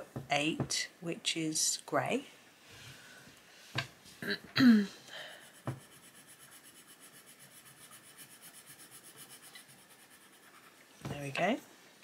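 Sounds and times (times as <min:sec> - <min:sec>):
pencil scratching on paper: 0:05.4 - 0:10.9.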